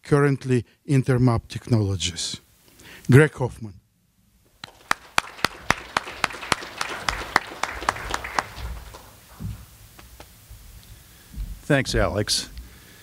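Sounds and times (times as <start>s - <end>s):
audience applause: 4.6s - 9.7s
close hand claps: 4.6s - 10.3s.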